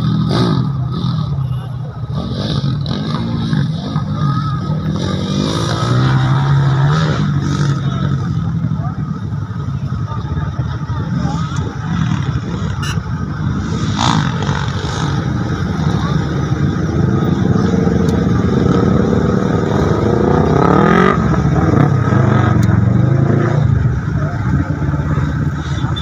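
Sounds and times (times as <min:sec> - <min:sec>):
dirt bike engines running: 0:00.0 - 0:26.0
dirt bike revving whine: 0:11.0 - 0:26.0.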